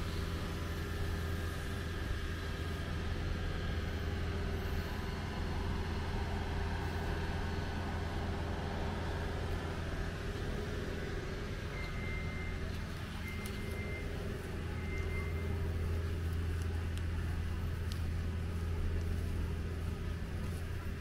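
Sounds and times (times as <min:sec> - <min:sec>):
town street noise: 0:00.0 - 0:21.0
vehicle engine idling: 0:00.0 - 0:21.0.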